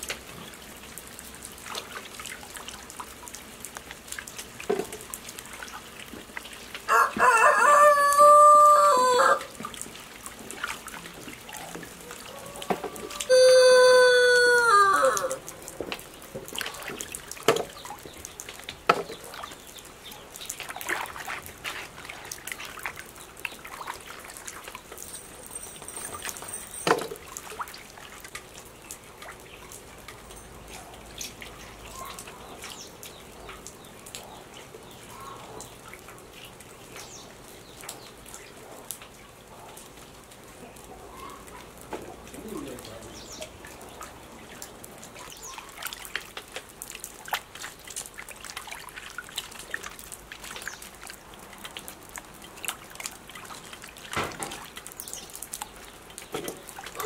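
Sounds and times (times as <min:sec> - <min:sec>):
water splashing in a steel basin: 0:00.0 - 0:39.2, 0:41.2 - 0:57.0
hands scrubbing bamboo shoots: 0:20.5 - 0:26.6.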